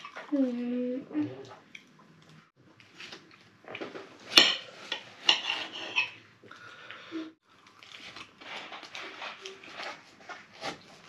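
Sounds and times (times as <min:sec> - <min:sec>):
knife and fork scraping a plate: 0:04.4 - 0:06.2.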